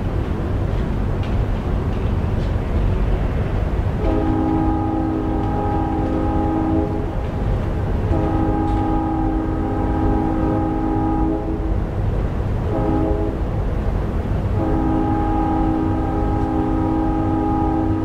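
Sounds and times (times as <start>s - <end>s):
distant locomotive air horn: 4.0s - 7.2s, 8.1s - 11.9s, 12.6s - 13.5s, 14.5s - 18.0s.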